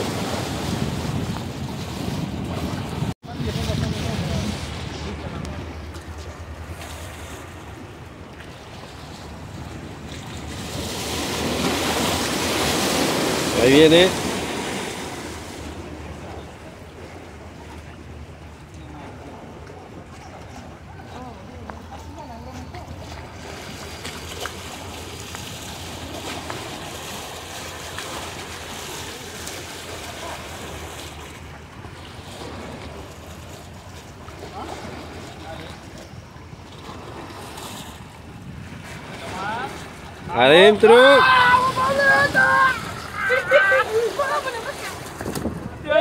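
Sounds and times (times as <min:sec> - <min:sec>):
wind rumble on microphone: 0:00.0 - 0:13.6, 0:44.5 - 0:46.0
wind buffeting microphone: 0:00.0 - 0:21.1, 0:36.1 - 0:46.0
water lapping: 0:00.0 - 0:46.0.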